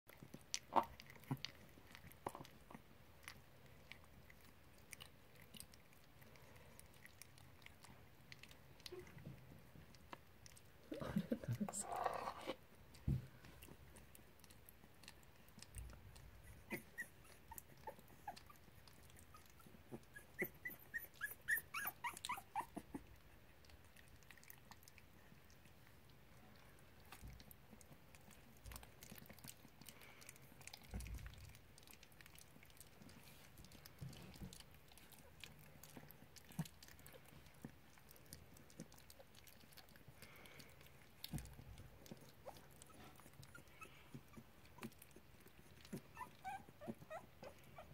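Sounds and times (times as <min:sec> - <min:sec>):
puppies lapping at food bowl: 0:00.1 - 0:47.9
puppies whimpering: 0:16.2 - 0:23.2, 0:42.0 - 0:47.9.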